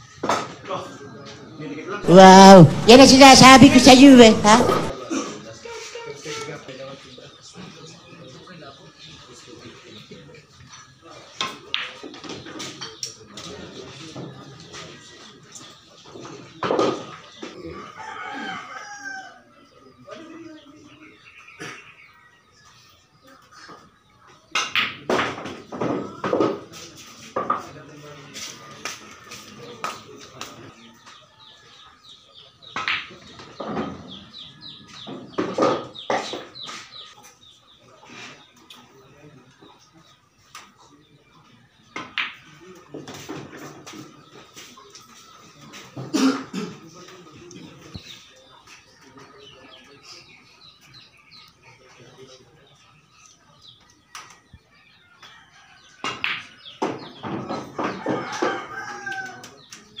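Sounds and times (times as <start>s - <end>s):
chickens clucking: 6.9s - 60.0s
rooster crowing: 17.9s - 19.5s, 58.0s - 59.4s.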